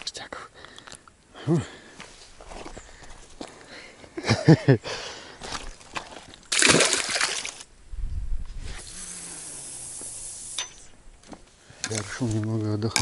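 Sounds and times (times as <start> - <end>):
water sloshing and splashing: 5.5 - 7.7
steady hiss: 8.6 - 11.0.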